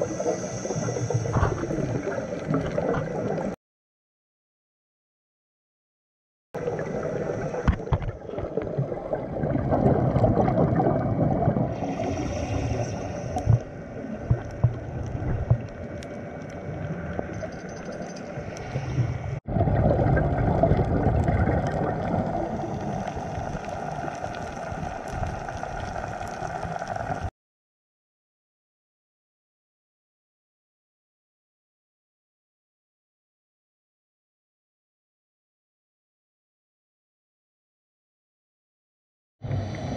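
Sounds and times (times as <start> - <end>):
muffled underwater water rush: 0.0 - 3.6, 6.6 - 27.3.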